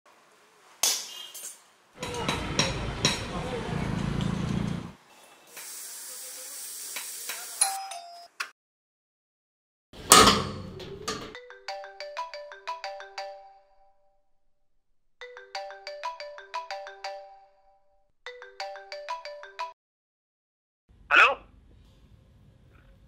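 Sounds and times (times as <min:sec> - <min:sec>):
smartphone ringtone: 0:11.4 - 0:14.0, 0:15.2 - 0:19.8.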